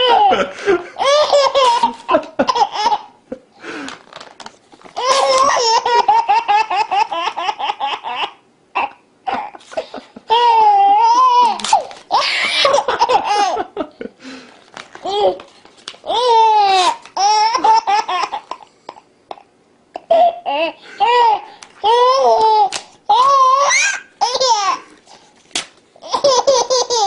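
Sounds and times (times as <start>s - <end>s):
baby laughing: 0.0s - 3.2s, 5.0s - 13.8s, 15.0s - 25.0s, 26.0s - 27.0s
baby squealing: 5.0s - 9.6s, 20.1s - 24.9s
paper tearing: 11.4s - 12.1s.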